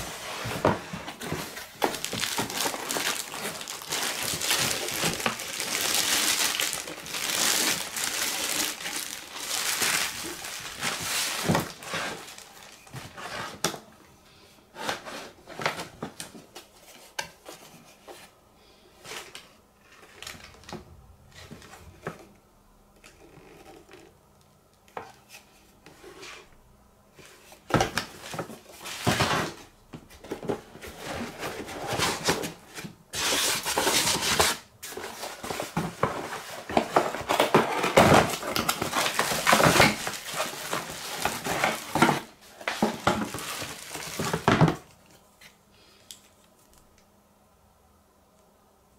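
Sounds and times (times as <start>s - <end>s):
plastic bag crinkling: 0.0s - 13.2s, 35.0s - 44.9s
foam insert rustling and scraping: 0.0s - 13.7s.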